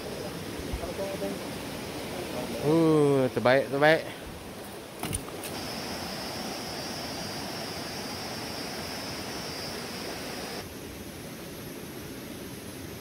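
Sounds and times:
river rushing over rapids: 0:00.0 - 0:13.0
high insect buzz: 0:05.0 - 0:10.7.

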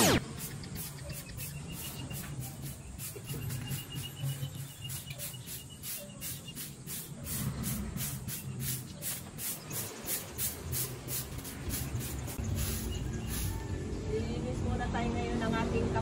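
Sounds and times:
broom sweeping the ground: 0:00.0 - 0:13.7.

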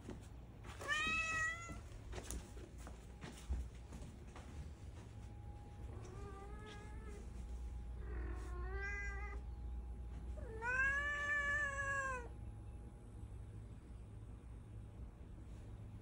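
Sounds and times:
cat meowing: 0:08.1 - 0:09.4, 0:10.4 - 0:12.3.

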